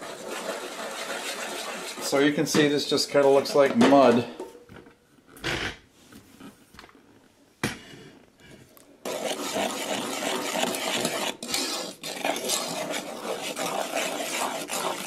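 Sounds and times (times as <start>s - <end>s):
spoon scraping a saucepan: 0.0s - 4.1s, 9.0s - 15.0s.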